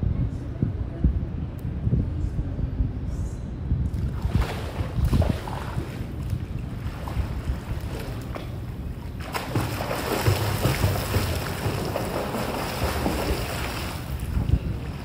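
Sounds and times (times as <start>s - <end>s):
wind rumble on microphone: 0.0s - 15.0s
water splashing: 4.0s - 15.0s.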